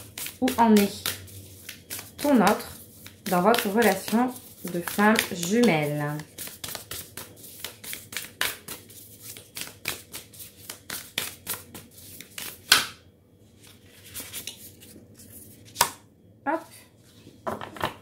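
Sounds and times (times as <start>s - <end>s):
cards being shuffled: 0.0s - 12.8s.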